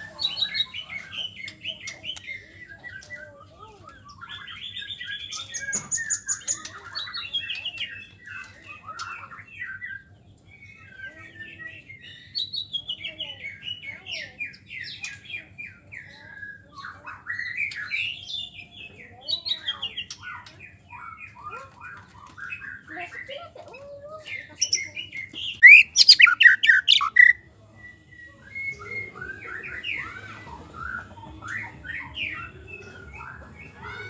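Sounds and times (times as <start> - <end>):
bird singing whistled trills: 25.5 - 34.0.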